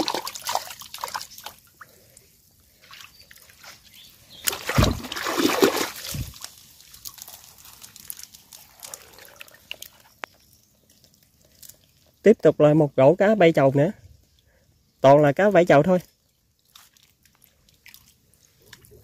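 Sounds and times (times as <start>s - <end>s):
water splashing and sloshing: 0.0s - 12.2s, 16.2s - 19.0s
water trickling: 0.0s - 12.4s, 15.2s - 19.0s.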